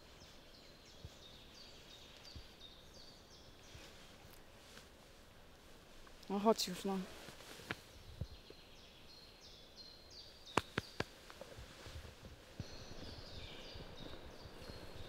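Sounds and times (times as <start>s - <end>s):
songbirds singing: 0.0s - 4.8s, 5.8s - 15.0s
sharp clicks: 10.5s - 11.1s.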